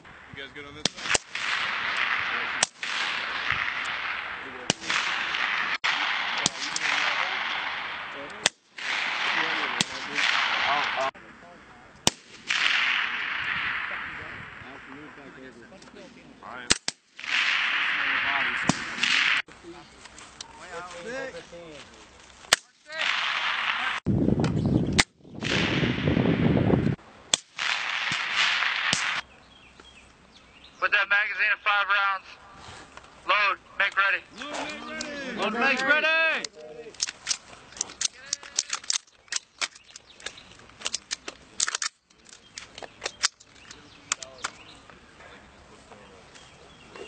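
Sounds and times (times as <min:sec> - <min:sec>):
rifle shots: 0:00.8 - 0:11.2, 0:12.0 - 0:15.2, 0:16.7 - 0:19.5, 0:22.5 - 0:24.1, 0:25.0 - 0:26.4, 0:27.3 - 0:29.2
rifle clicks and rattles: 0:35.8 - 0:44.6.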